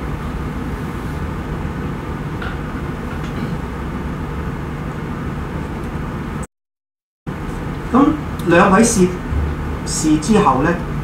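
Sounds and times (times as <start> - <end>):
low hum: 7.3 - 10.0
room background hiss: 7.4 - 11.0.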